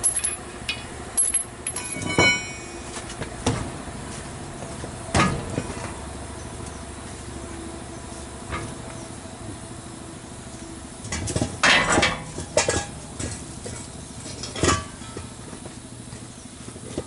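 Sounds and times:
metal tools clanking: 0.0 - 2.8
steady low hum: 0.0 - 17.0.

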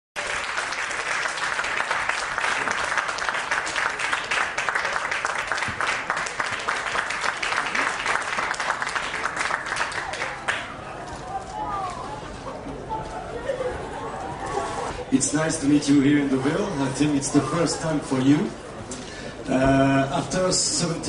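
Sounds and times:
audience clapping: 0.2 - 11.2.

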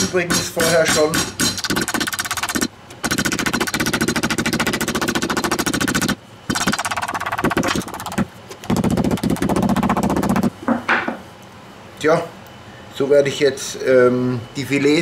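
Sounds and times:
mallet pounding meat on board: 0.0 - 7.8.

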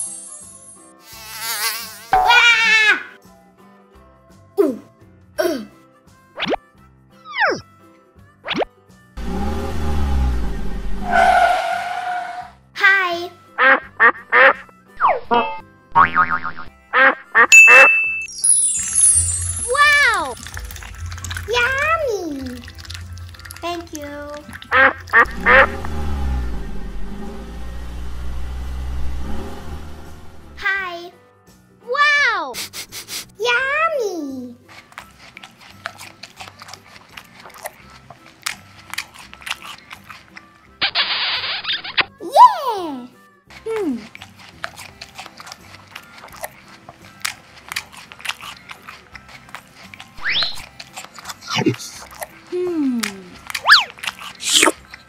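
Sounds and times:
rabbit chewing crunchy vegetable: 19.4 - 25.6, 34.6 - 40.8, 43.5 - 55.0
ducklings quacking: 24.7 - 25.8.

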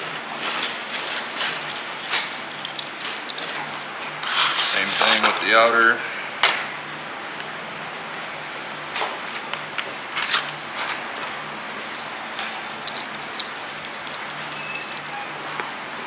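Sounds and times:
metallic ticks and rattles: 11.5 - 16.0.

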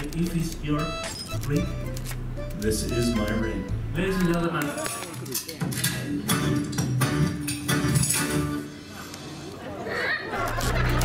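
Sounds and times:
stage show music with beat: 6.2 - 9.0.

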